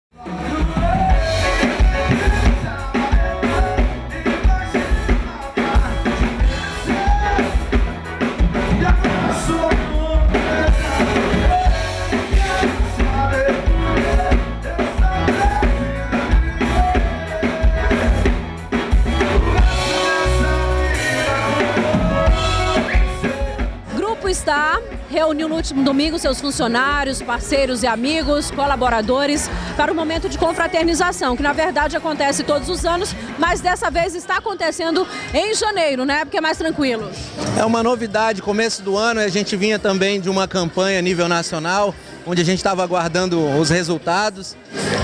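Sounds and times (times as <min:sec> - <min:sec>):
bass line: 0:00.1 - 0:34.2
drum kit beat: 0:00.2 - 0:36.6.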